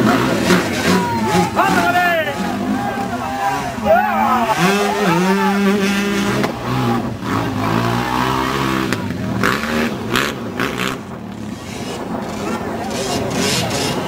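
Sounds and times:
dirt bike engines revving: 0.0s - 14.0s.

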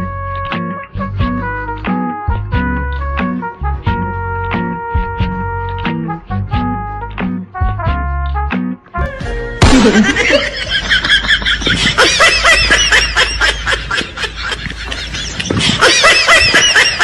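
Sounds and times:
music: 0.0s - 17.0s
people laughing: 9.6s - 17.0s.

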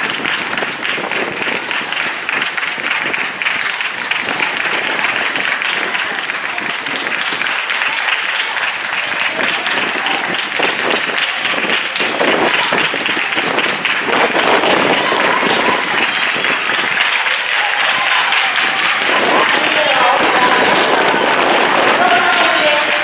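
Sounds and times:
people clapping: 0.0s - 23.0s
spectators cheering and shouting: 0.0s - 23.0s.

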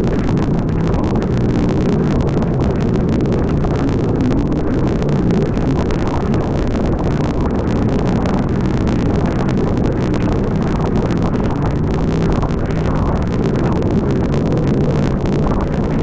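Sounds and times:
watercraft engine drone: 0.0s - 16.0s.

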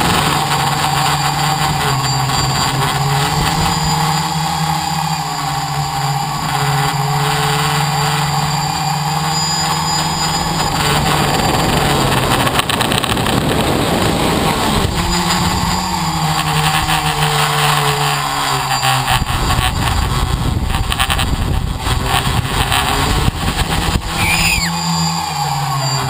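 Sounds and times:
drone motors humming: 0.0s - 26.0s
rush of air noise: 23.1s - 24.7s.

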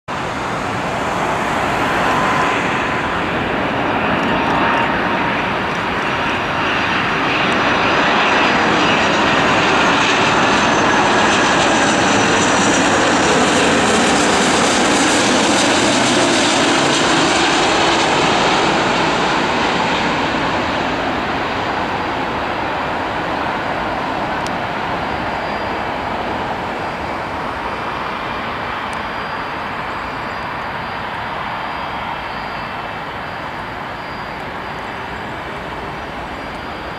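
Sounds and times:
high engine whine sliding down: 0.1s - 7.1s, 24.3s - 36.9s
jet airliner engine roar: 0.1s - 36.9s.

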